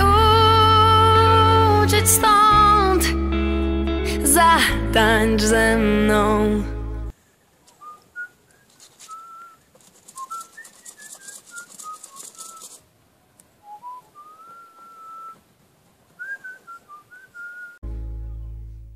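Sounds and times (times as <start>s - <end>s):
scratchy rustle: 8.6s - 12.8s
person whistling a tune: 9.1s - 9.6s, 10.2s - 12.8s, 13.6s - 15.4s, 16.2s - 17.8s.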